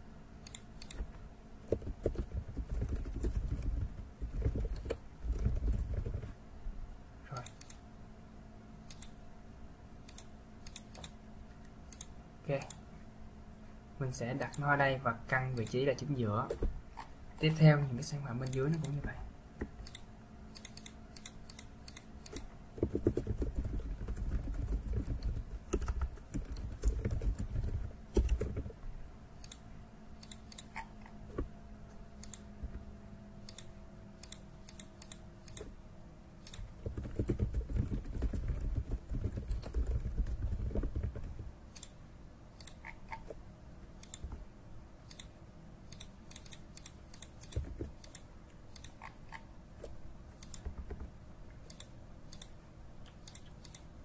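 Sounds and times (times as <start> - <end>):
faint steady hum: 0.0 - 54.0
mouse clicks: 0.4 - 1.1
keyboard typing: 1.6 - 6.4, 19.8 - 28.8, 36.4 - 42.0.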